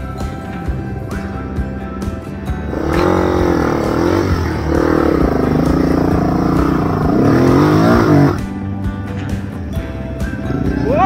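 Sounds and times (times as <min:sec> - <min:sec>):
motorcycle engine revving: 0:02.6 - 0:08.7.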